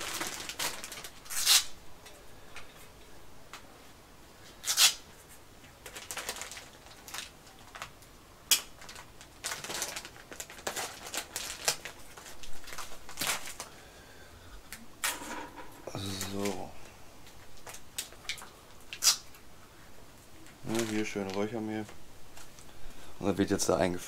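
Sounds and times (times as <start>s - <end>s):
sharp packet crackles: 0.0s - 2.2s, 4.6s - 5.0s, 5.8s - 13.8s, 15.8s - 19.4s, 20.6s - 22.6s
packet crinkling and rustling: 0.0s - 2.7s, 5.6s - 13.8s, 15.0s - 19.5s, 20.5s - 22.7s.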